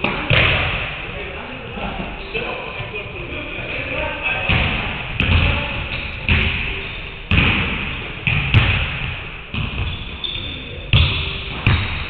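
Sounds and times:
basketballs bouncing on hardwood floor: 4.5 - 6.7, 7.3 - 12.0.

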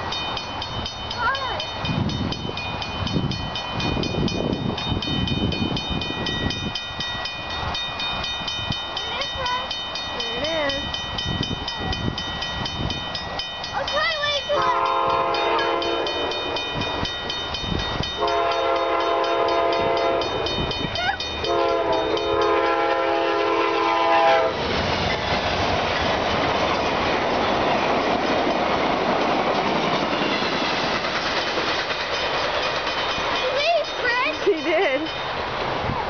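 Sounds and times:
crossing signal bells ringing: 0.0 - 24.6, 26.4 - 36.0
train wheels rushing on rail: 0.0 - 36.0
train horn blasts: 14.6 - 16.7, 18.2 - 20.6, 21.4 - 24.6.

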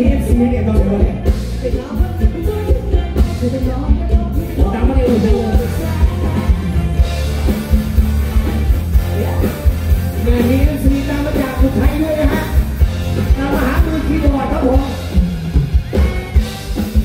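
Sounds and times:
woman singing into a microphone: 0.0 - 6.8, 10.2 - 12.6
electric guitar: 0.0 - 17.0
steady drum beat: 0.0 - 17.0.

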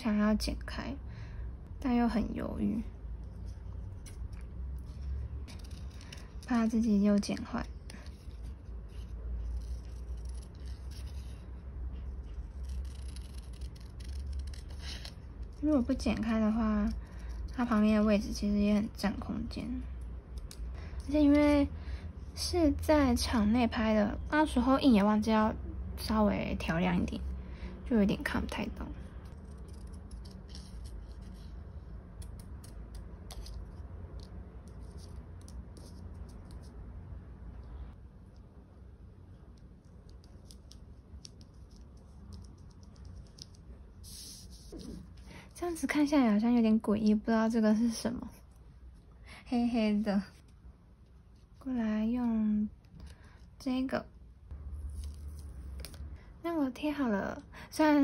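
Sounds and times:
low steady hum: 0.0 - 58.0
scissors snipping paper: 12.0 - 18.4, 32.1 - 36.7.

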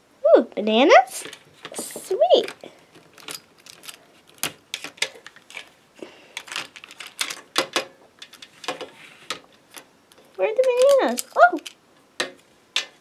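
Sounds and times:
plastic toy pieces clicking on table: 6.4 - 9.4, 10.1 - 13.0.

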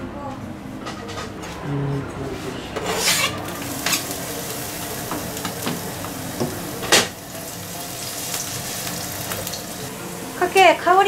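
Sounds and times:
knife scraping cutting board: 2.8 - 4.0
garlic sizzling in oil: 3.0 - 11.0.

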